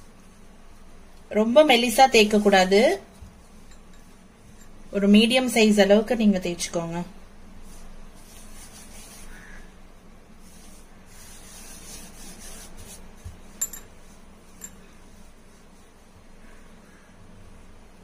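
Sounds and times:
hands rubbing dough: 0.0s - 5.3s, 7.6s - 16.6s
faint steady hum: 0.0s - 18.0s.

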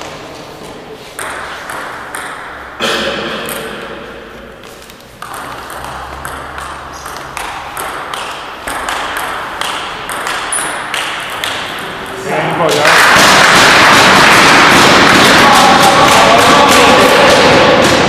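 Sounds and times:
table tennis ball clicking: 4.9s - 11.7s.

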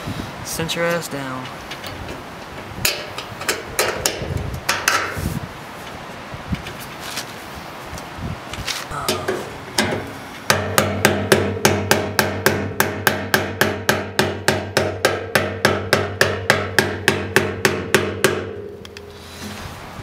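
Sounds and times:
hammer tapping a punch: 9.8s - 18.6s.

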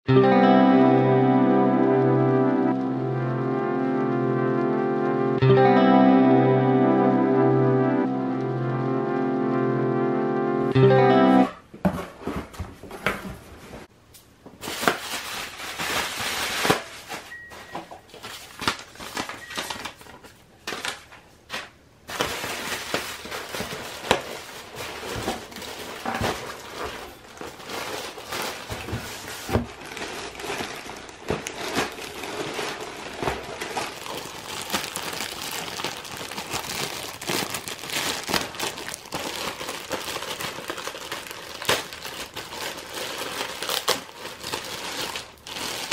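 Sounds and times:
plastic packaging crinkling: 14.6s - 45.9s.

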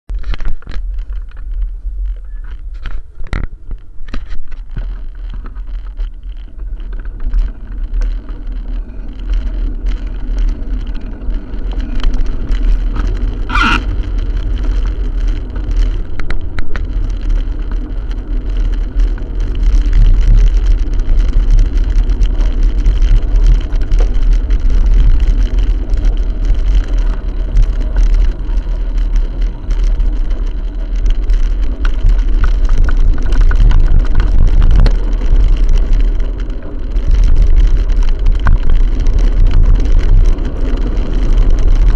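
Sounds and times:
low road rumble: 0.0s - 41.9s
small clicks and rattles: 0.1s - 41.9s
wind buffeting microphone: 0.1s - 41.9s
high squeal: 13.4s - 14.0s.

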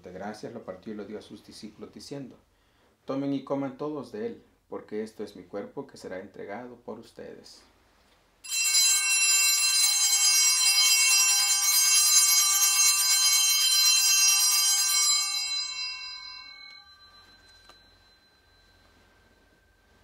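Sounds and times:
altar bells ringing: 8.4s - 20.0s.

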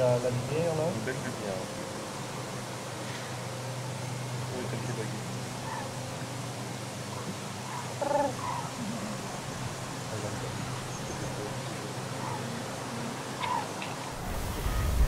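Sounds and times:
steady low hum: 0.0s - 15.0s
cranes calling: 5.3s - 15.0s.

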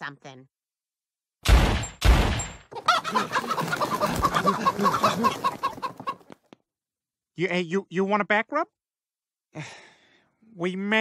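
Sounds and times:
chicken clucking: 2.8s - 6.4s.

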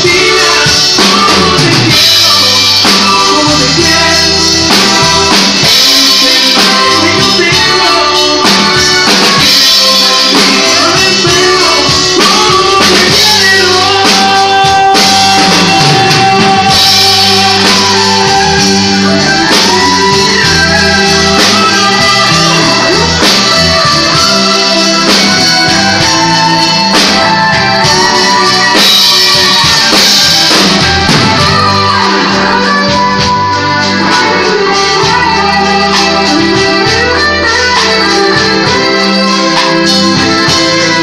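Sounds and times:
drums: 0.0s - 41.0s
electric bass: 0.0s - 41.0s
electric guitar: 0.0s - 41.0s.

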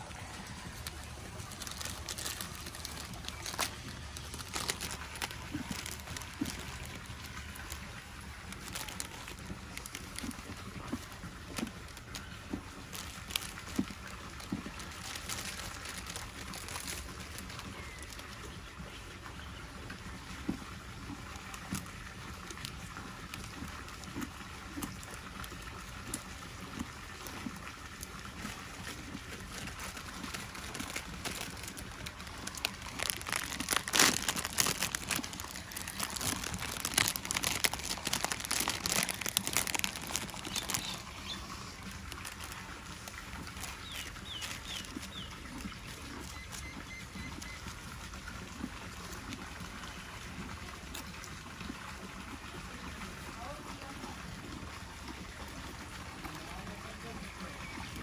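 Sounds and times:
foil packet crinkling: 0.0s - 18.8s, 21.0s - 48.2s.

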